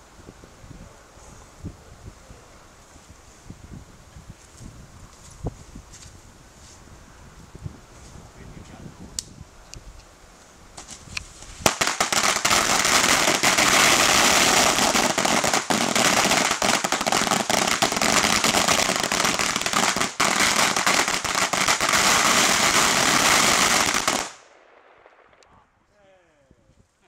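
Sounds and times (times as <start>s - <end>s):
firecrackers banging: 10.8s - 24.4s.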